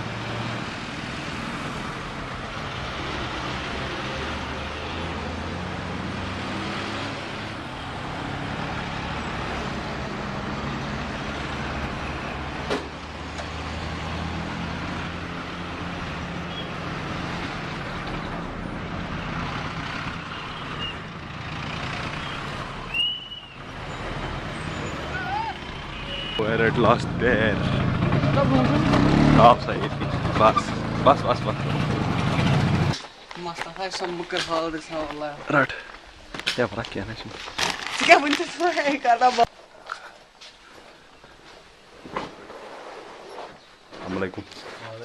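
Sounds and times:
heavy truck engines running: 0.0s - 33.2s
road noise: 0.0s - 45.0s.

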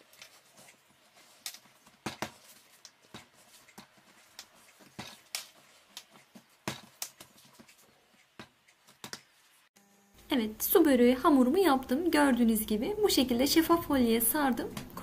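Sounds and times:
hands kneading dough: 0.0s - 9.7s.

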